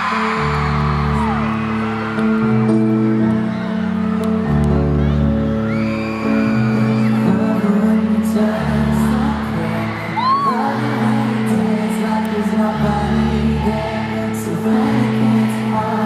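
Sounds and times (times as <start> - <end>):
crowd cheering: 0.0 - 16.0
live pop band music: 0.0 - 16.0
person singing: 6.8 - 16.0.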